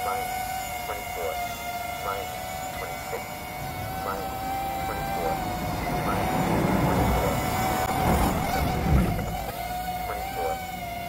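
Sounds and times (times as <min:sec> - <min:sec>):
quadcopter motors whining: 0:00.0 - 0:11.0.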